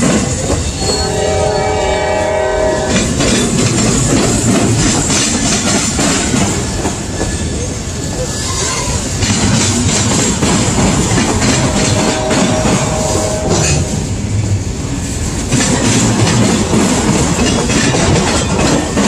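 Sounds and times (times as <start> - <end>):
freight train rumble and wheel clatter: 0.0 - 19.0
train horn chord: 0.8 - 3.2, 11.6 - 14.1.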